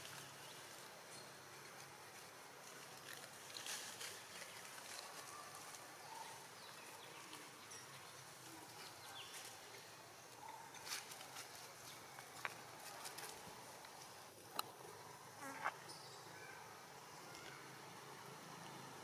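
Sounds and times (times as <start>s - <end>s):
rustling in dry leaves: 0.0s - 14.2s.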